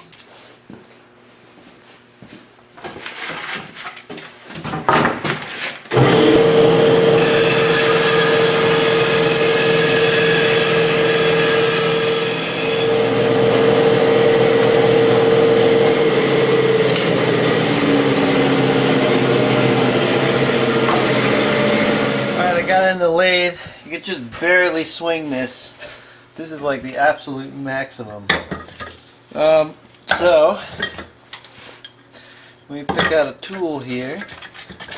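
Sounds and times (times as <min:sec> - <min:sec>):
bandsaw cutting plywood: 0:05.9 - 0:22.9.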